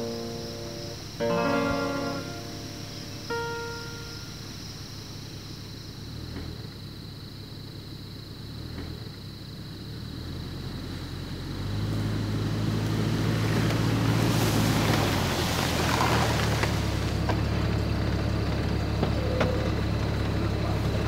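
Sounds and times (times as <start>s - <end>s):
rush of grass: 0.0s - 9.2s, 9.8s - 21.0s
car engine running: 0.0s - 21.0s.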